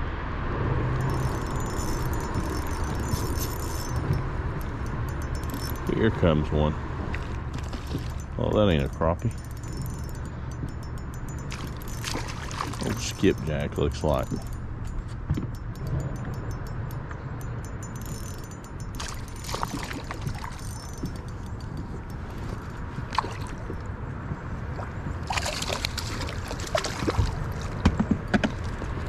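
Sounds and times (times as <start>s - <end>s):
wind rumble on microphone: 0.0s - 29.0s
water sloshing: 1.0s - 29.0s
fish splashing at surface: 11.5s - 13.1s, 24.8s - 27.7s.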